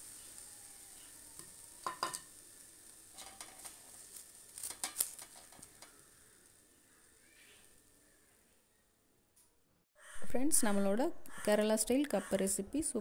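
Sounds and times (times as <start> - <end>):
faint oil sizzle: 0.0 - 8.9.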